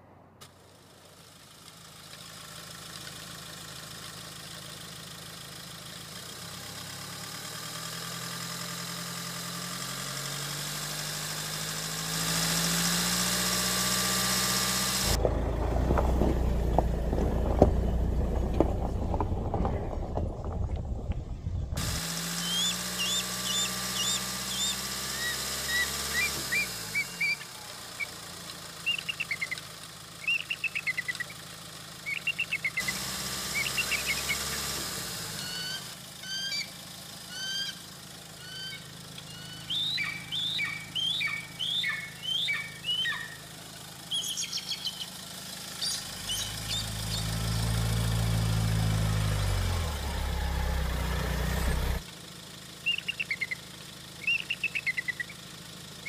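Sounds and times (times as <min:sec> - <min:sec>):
vehicle engine passing: 0:06.7 - 0:29.5, 0:32.0 - 0:36.4, 0:39.3 - 0:52.0
small birds chirping: 0:22.3 - 0:34.7, 0:35.4 - 0:47.7, 0:52.8 - 0:56.0.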